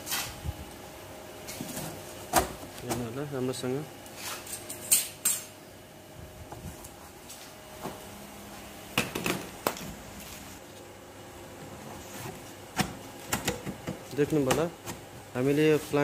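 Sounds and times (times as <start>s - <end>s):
knocks and taps of duct handling: 12.8s - 15.0s.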